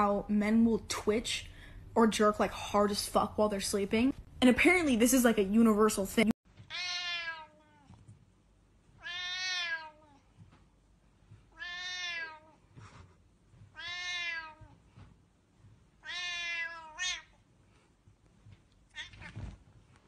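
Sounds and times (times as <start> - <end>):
cat meowing: 6.6 - 8.0, 8.9 - 10.2, 11.5 - 12.6, 13.8 - 14.8, 16.0 - 17.3, 18.9 - 19.5.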